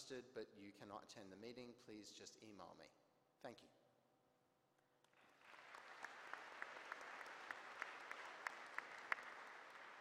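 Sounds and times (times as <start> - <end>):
single claps: 5.0 - 10.0
audience applauding: 5.1 - 10.0.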